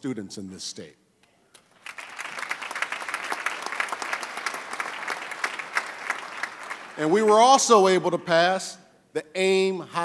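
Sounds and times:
audience applauding: 1.7 - 8.4.

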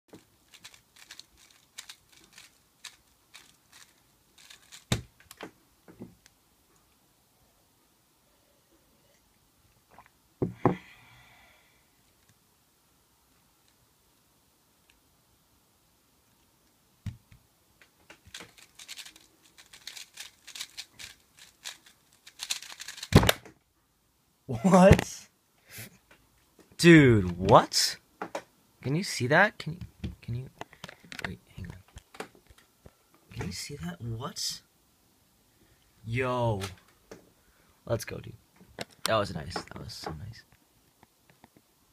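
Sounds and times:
plastic puzzle cube clicking: 0.5 - 5.5, 18.2 - 23.4
cube knocked down on mat: 10.4 - 10.8, 23.1 - 23.5.

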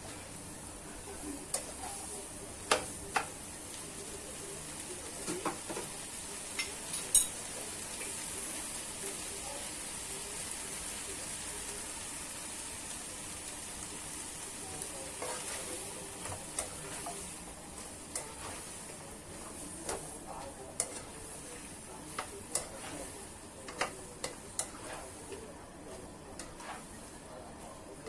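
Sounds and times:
food sizzling in a wok: 0.0 - 28.0
spatula scraping a pan: 15.1 - 28.0.

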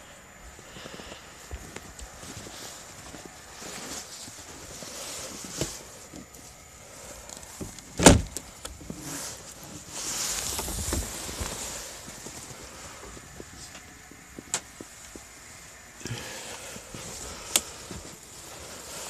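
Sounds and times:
rustling: 0.2 - 19.0
footsteps crunching in snow: 0.5 - 7.0, 8.8 - 19.0
vehicle door unlatching clunk: 8.0 - 8.4.

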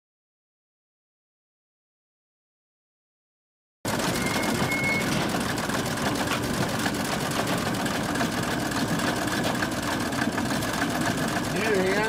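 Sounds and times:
engine idling with mechanical clatter: 3.9 - 12.0.

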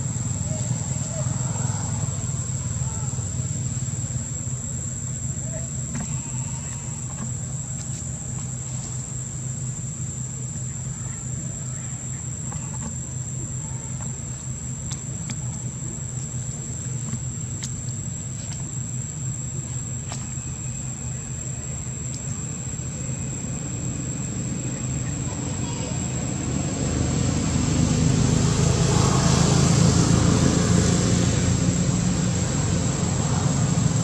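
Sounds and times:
high insect drone: 0.0 - 34.0
faint clicks: 13.9 - 19.2.

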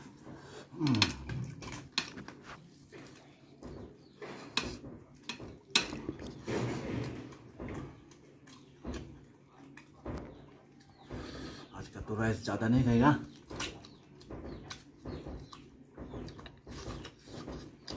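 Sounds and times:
chewing: 0.0 - 11.4, 13.2 - 17.9
clicks of bone and plate: 3.6 - 6.4.

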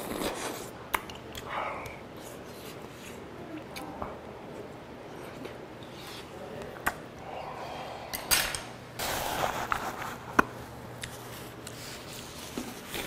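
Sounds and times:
breathing: 7.2 - 8.7.

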